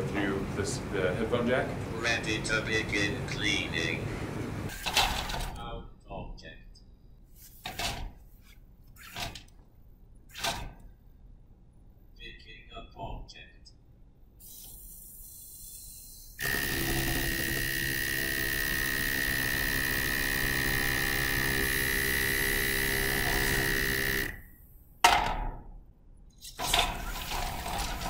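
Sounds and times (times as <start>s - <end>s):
electric motors whining: 14.6s - 24.5s.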